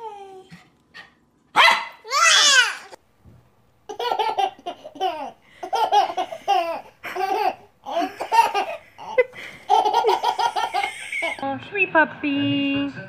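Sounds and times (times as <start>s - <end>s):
baby laughing: 3.9s - 11.4s.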